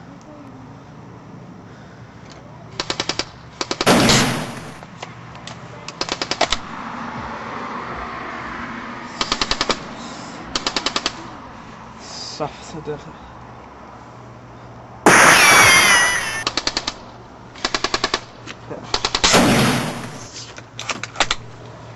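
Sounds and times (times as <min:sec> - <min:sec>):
airsoft gun firing bursts: 0:02.8 - 0:04.8
loud burst of noise: 0:03.9 - 0:04.8, 0:15.0 - 0:16.4, 0:19.4 - 0:20.3.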